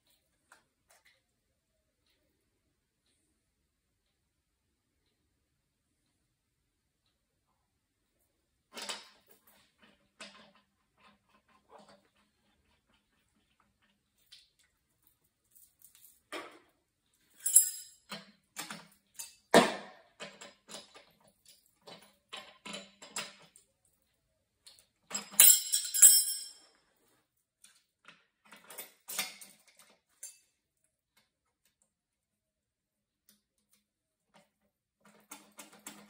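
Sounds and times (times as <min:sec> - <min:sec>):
metal parts and tools clinking: 0:17.3 - 0:19.5, 0:25.1 - 0:26.7
metal jangling rattle: 0:17.4 - 0:18.0, 0:25.2 - 0:26.6.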